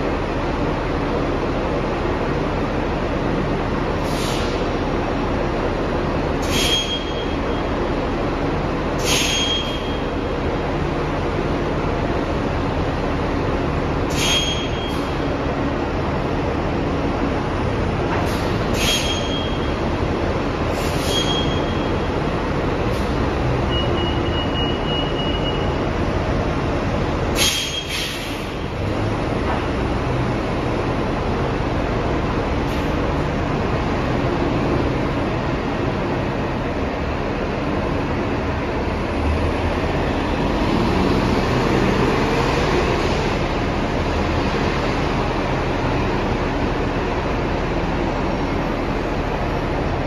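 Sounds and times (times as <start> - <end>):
bus engine running: 0.0 - 50.0
air brake hiss: 4.0 - 4.7, 6.4 - 7.1, 9.0 - 9.9, 14.1 - 15.2, 18.2 - 19.3, 20.7 - 21.7, 27.3 - 28.6
brake squeal: 6.4 - 7.8, 9.0 - 10.2, 14.1 - 15.2, 18.3 - 19.9, 20.7 - 22.2, 22.9 - 25.9, 27.4 - 28.6.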